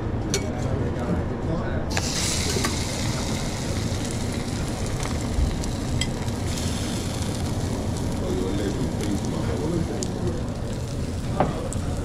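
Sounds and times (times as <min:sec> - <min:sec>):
food sizzling on hot surface: 0:01.9 - 0:12.0
steady low rumble: 0:02.5 - 0:12.0.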